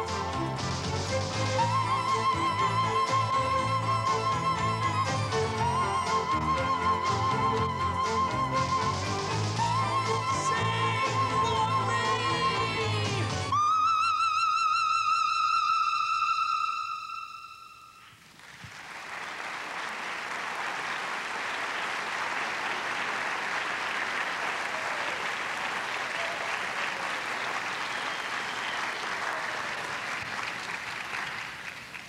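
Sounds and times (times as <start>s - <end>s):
audience applauding: 18.2s - 32.0s.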